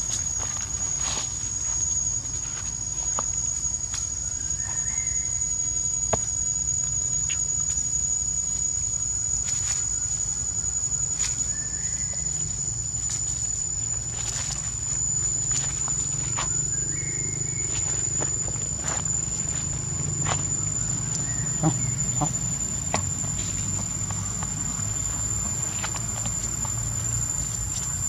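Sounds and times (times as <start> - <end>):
high-pitched insect drone: 0.0 - 28.0
rustling of dry leaves: 0.0 - 28.0.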